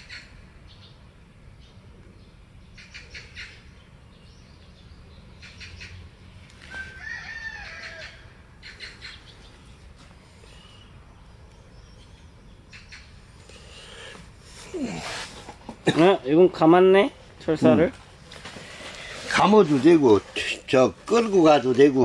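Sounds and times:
birds chirping rapidly: 0:00.0 - 0:15.0.

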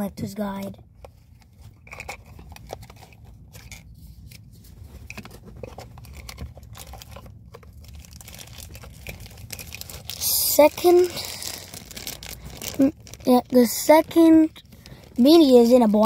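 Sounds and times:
low steady hum: 0:00.0 - 0:16.0
plastic and paper rustling: 0:00.4 - 0:16.0.

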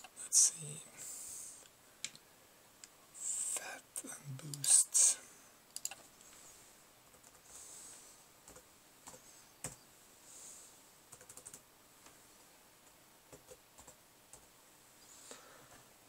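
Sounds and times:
computer keyboard keystrokes: 0:05.7 - 0:06.0, 0:11.1 - 0:11.6.

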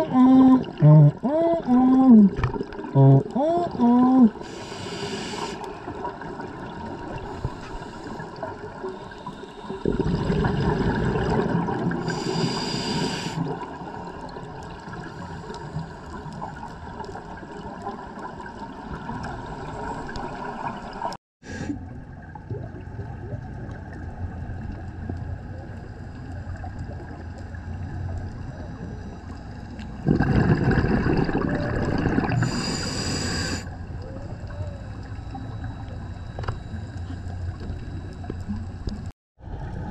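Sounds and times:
scuba regulator bubbling exhalations: 0:00.0 - 0:06.1, 0:09.6 - 0:13.7, 0:30.0 - 0:34.6
underwater ambience: 0:00.0 - 0:39.9.

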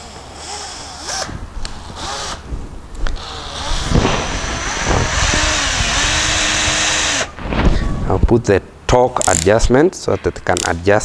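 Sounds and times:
drill driving screw into wood: 0:00.0 - 0:02.4, 0:03.2 - 0:07.4.

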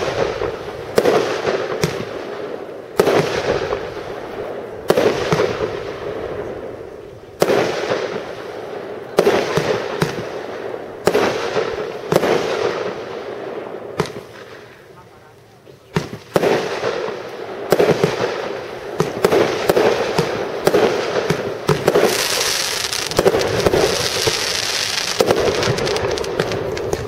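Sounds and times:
fireworks bangs echoing: 0:00.0 - 0:14.8, 0:15.9 - 0:27.0.

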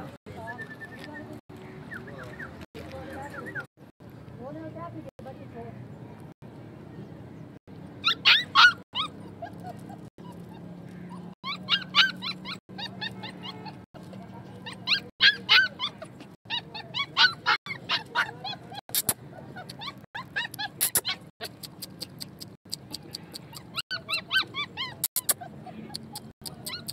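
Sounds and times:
puppy whining and yelping: 0:08.0 - 0:26.9.

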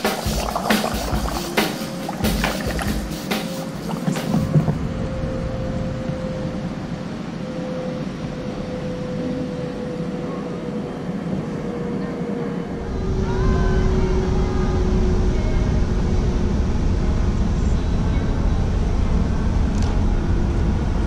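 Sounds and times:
water noise: 0:00.0 - 0:10.0
mechanical hum: 0:00.0 - 0:21.0
wind: 0:00.0 - 0:21.0.

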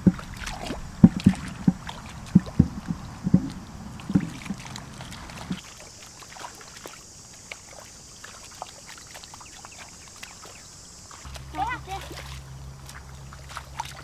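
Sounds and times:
dull wet knocks: 0:00.0 - 0:05.6
hands squelching in muddy water: 0:00.0 - 0:14.0.

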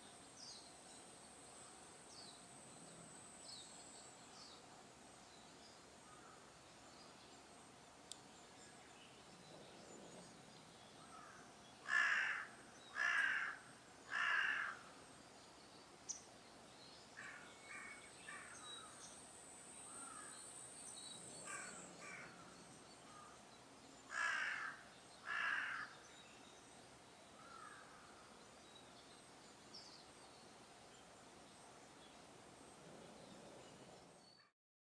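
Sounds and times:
crow cawing: 0:11.1 - 0:14.8, 0:21.5 - 0:22.3, 0:24.1 - 0:25.9, 0:27.4 - 0:28.1.

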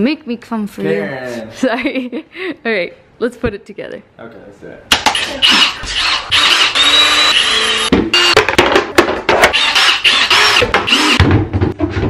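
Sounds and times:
cordless drill motor whine: 0:05.5 - 0:08.4, 0:09.6 - 0:11.2.

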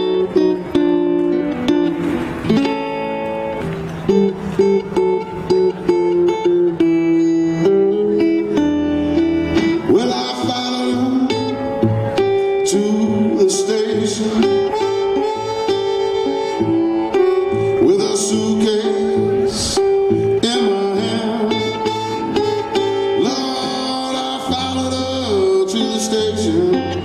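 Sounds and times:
resonator guitar plucking: 0:00.0 - 0:27.0
harmonica held notes: 0:13.8 - 0:25.4.

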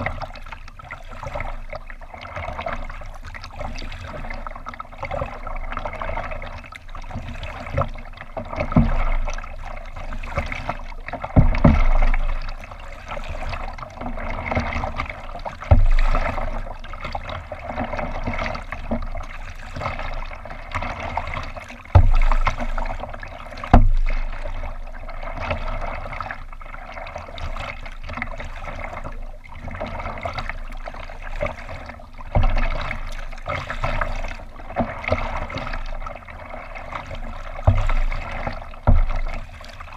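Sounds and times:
water lapping against a hull: 0:00.0 - 0:39.9
dull low thumps: 0:11.3 - 0:12.6, 0:15.6 - 0:16.8, 0:21.9 - 0:24.8, 0:37.5 - 0:39.4.

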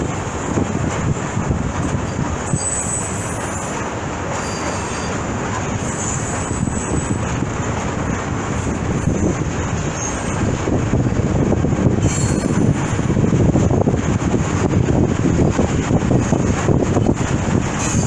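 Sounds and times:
train wheels rumbling on rail: 0:00.0 - 0:18.0
high wheel squeals: 0:02.4 - 0:07.3, 0:08.0 - 0:10.4, 0:12.0 - 0:12.8, 0:17.8 - 0:18.0.

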